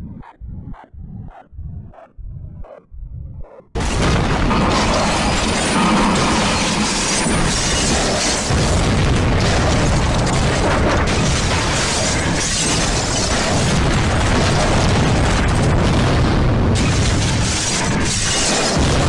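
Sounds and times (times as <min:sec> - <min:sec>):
explosion rumbling and crackling: 0:01.0 - 0:19.0.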